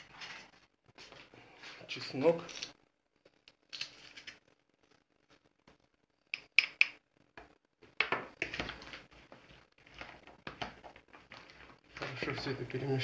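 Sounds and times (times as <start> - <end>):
hands mixing salad in bowl: 8.8 - 12.7.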